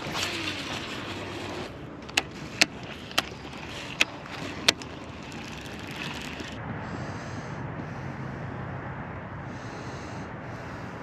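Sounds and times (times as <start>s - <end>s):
reel spool whirring: 0.0s - 6.6s.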